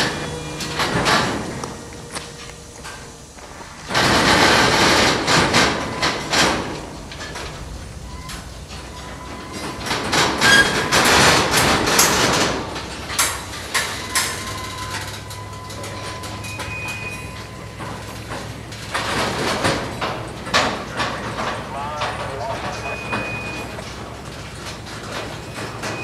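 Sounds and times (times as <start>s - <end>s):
low hum: 0.0s - 15.6s
thin steady whine: 0.0s - 19.0s
railroad cars clanking: 0.0s - 26.0s.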